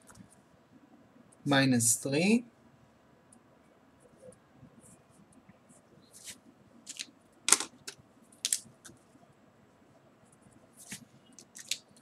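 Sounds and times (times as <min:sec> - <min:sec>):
marker scratching on paper: 0:04.8 - 0:06.4, 0:10.3 - 0:11.8.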